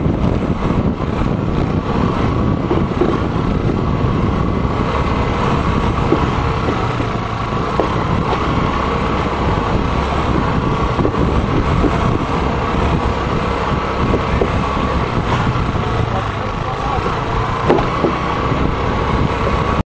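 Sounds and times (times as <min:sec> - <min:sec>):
motorcycle engine running: 0:00.0 - 0:19.8
wooden planks knocking under tyres: 0:02.6 - 0:03.4, 0:05.8 - 0:08.8, 0:17.6 - 0:18.4.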